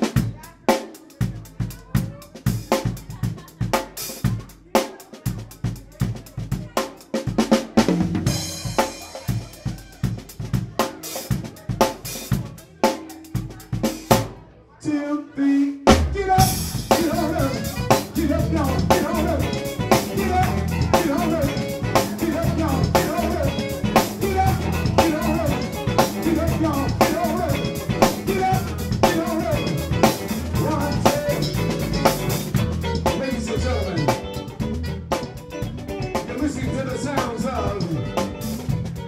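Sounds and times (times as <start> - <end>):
drums: 0.0 - 14.6, 15.8 - 39.0
guitar: 0.0 - 14.7, 15.9 - 39.0
electric bass: 7.8 - 10.6, 16.1 - 39.0.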